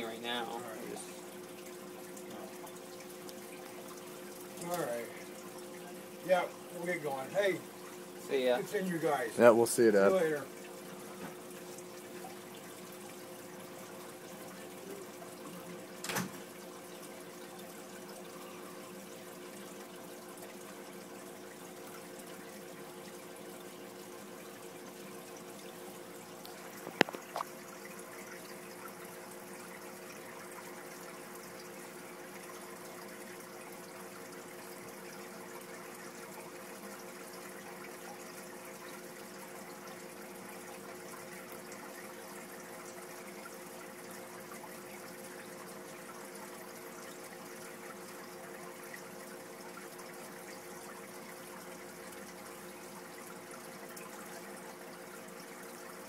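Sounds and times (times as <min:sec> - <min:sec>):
aquarium bubbling: 0:00.0 - 0:56.0
low pump hum: 0:00.0 - 0:56.0
water trickling: 0:00.0 - 0:56.0.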